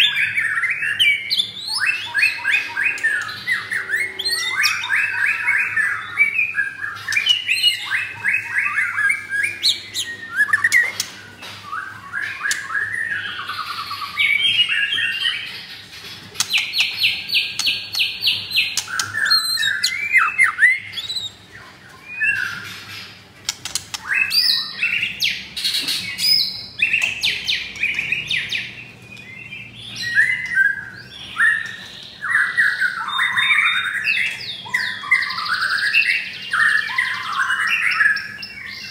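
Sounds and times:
bird singing whistled trills: 0.0 - 15.5, 16.4 - 22.8, 23.9 - 38.9.

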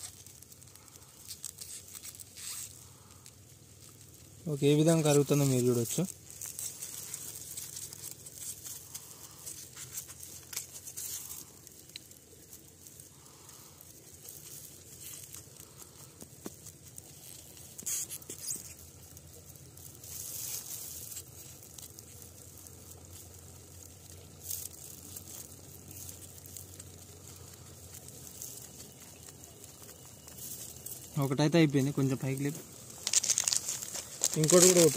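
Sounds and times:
foam crackles: 0.0 - 34.9
foam crinkling and rustling: 0.0 - 34.9.

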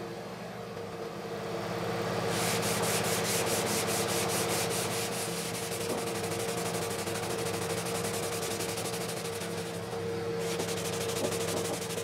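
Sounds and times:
sanding block rasping: 2.4 - 9.8, 10.4 - 12.0.

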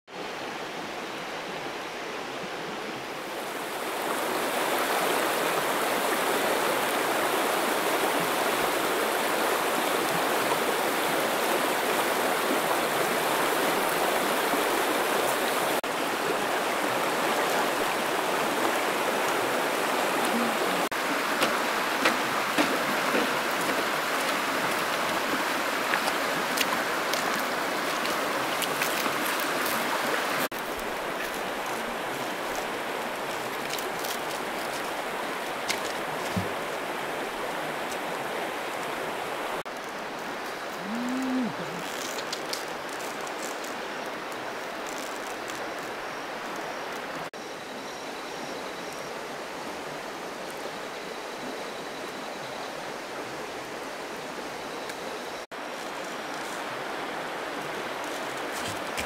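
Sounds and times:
rush of flowing water: 0.1 - 59.0
small splashes and ticks: 21.4 - 36.5, 41.8 - 47.2.

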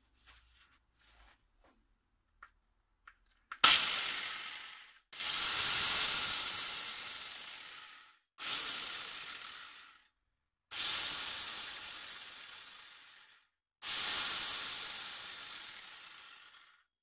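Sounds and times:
angle grinder hissing whir: 3.6 - 10.0, 10.7 - 16.8.

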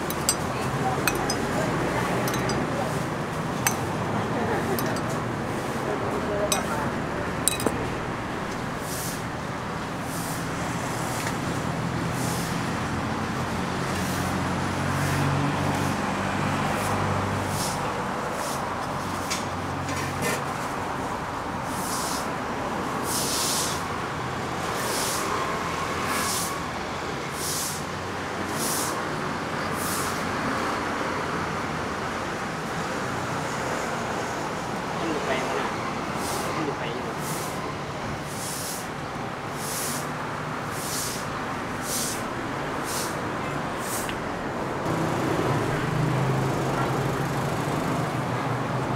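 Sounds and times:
street traffic: 0.0 - 48.9
vehicle engine running: 44.7 - 48.2.

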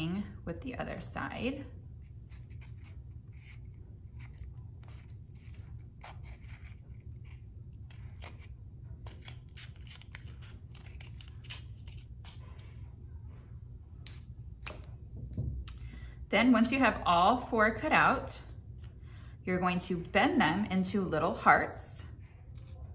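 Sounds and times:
faint low hum: 0.0 - 22.9
scissors cutting cardboard: 2.1 - 12.8.

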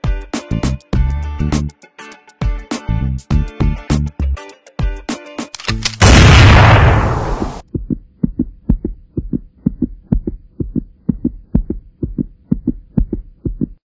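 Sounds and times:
heartbeat thuds: 7.4 - 13.8.

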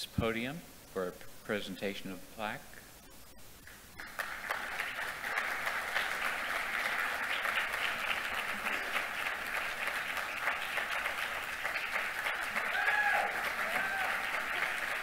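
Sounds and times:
audience applauding: 4.0 - 15.0.

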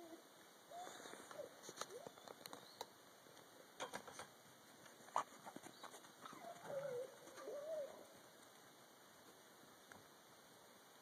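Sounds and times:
dog whining: 6.2 - 8.0.

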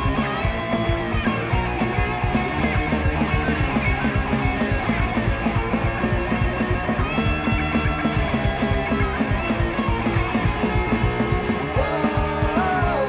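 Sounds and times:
rock guitars over a beat: 0.0 - 13.0.

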